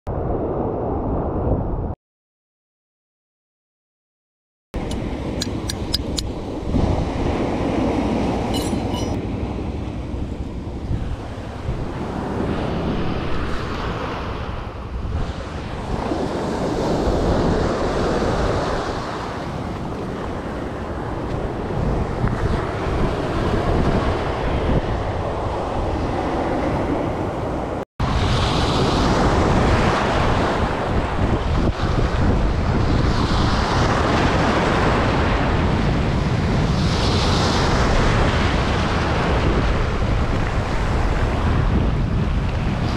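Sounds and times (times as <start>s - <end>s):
wind buffeting microphone: 4.8s - 42.9s
small waves breaking on sand: 11.1s - 42.9s.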